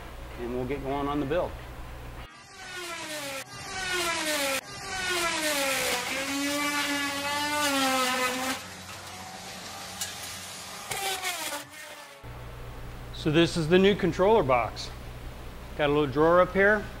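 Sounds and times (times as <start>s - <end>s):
motor whining and revving: 2.2s - 12.3s.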